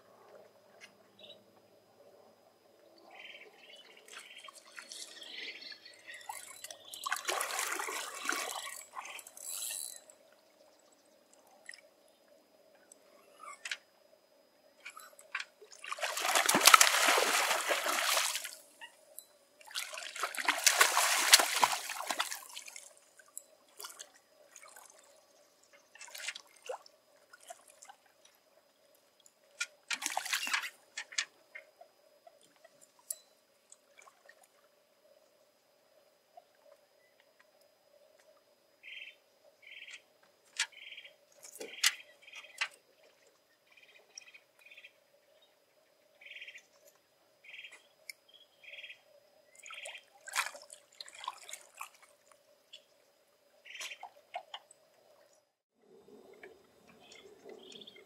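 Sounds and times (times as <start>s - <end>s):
fish splashing in water: 7.1s - 8.8s, 15.8s - 18.6s, 19.7s - 22.9s
bird chirping: 38.8s - 40.0s.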